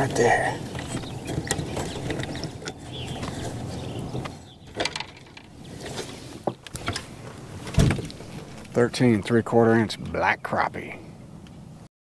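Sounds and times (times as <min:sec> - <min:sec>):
knocks and clicks on boat: 0:00.0 - 0:05.6.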